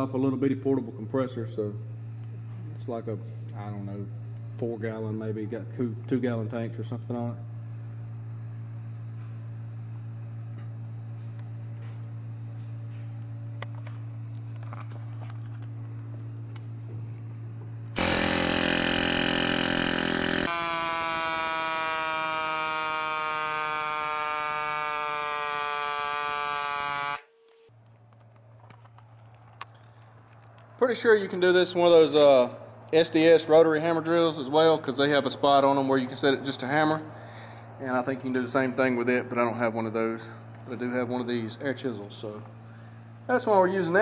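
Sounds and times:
air compressor humming: 0:10.8 - 0:27.3
pneumatic air hammer rattling: 0:18.0 - 0:27.3.

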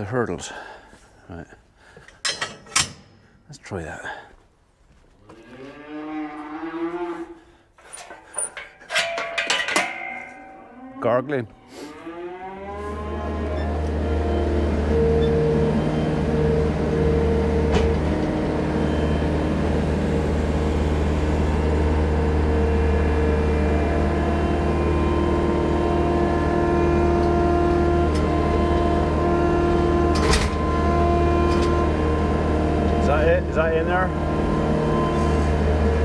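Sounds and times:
skid-steer loader engine running: 0:12.8 - 0:36.0.

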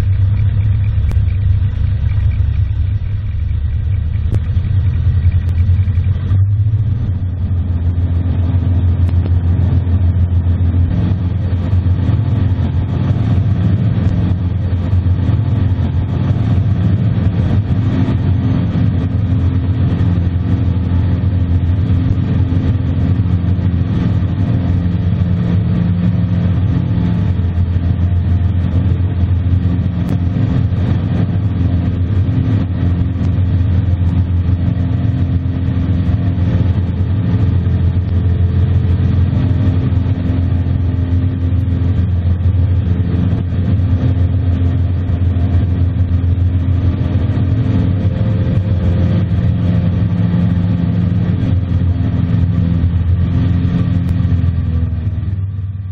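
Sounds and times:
plane engine and propeller: 0:00.0 - 0:55.9.

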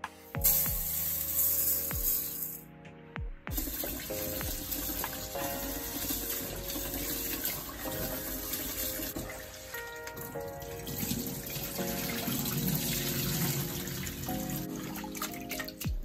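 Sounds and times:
rice rinsed by hand: 0:03.5 - 0:15.8.

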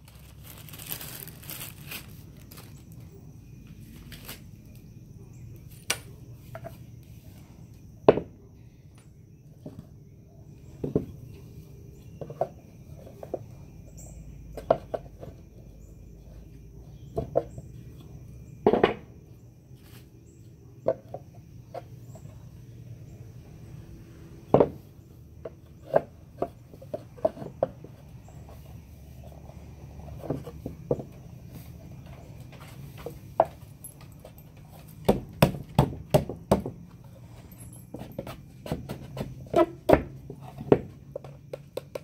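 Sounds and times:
wooden boards knocking together: 0:18.6 - 0:19.1, 0:35.0 - 0:36.9, 0:38.1 - 0:42.0.

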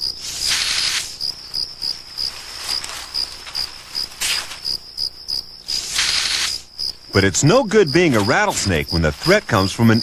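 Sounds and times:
snake hissing: 0:00.0 - 0:01.4, 0:05.6 - 0:06.7
crickets chirping: 0:00.0 - 0:10.0.

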